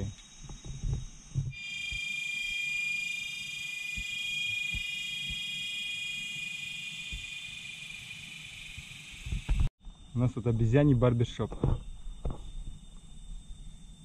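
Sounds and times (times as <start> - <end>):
cicada chorus droning: 0.0 - 14.0
soft low thumps: 0.4 - 1.6.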